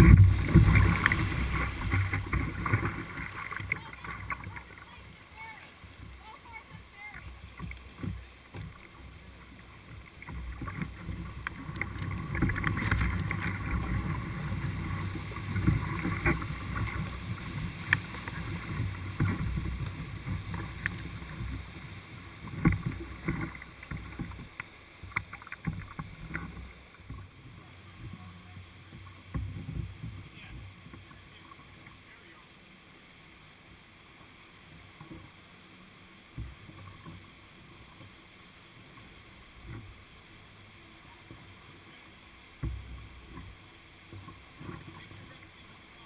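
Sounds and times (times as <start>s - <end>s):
whitewater rushing: 0.0s - 46.0s.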